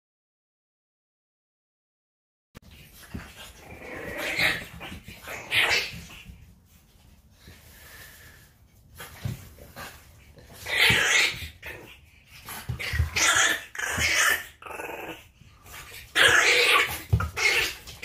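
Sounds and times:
dogs vocalizing while playing: 0:02.6 - 0:06.8, 0:08.9 - 0:18.0.

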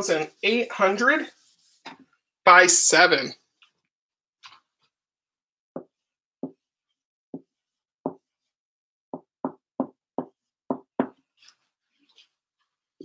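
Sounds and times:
marker knocking on whiteboard: 0:05.8 - 0:06.6, 0:07.4 - 0:08.3, 0:09.1 - 0:11.2.

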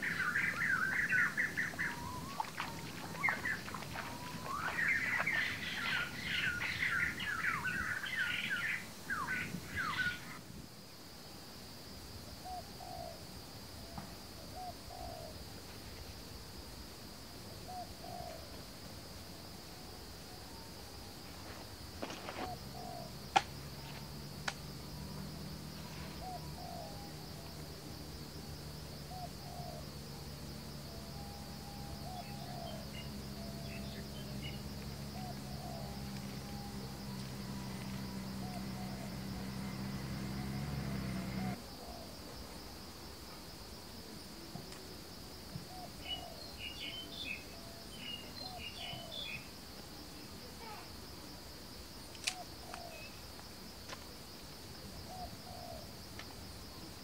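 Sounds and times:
small birds chirping and singing: 0:00.0 - 0:10.4
soft low bird call: 0:00.0 - 0:10.4
high insect drone: 0:00.0 - 0:57.0.

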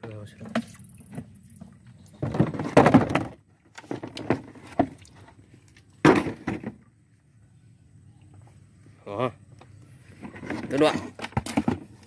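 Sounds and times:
bucket knocking on wooden deck: 0:02.2 - 0:05.0, 0:06.0 - 0:06.8.

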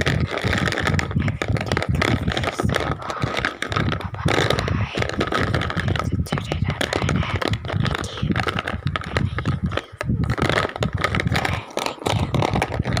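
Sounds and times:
crayons rattling in plastic tray: 0:00.0 - 0:13.0.

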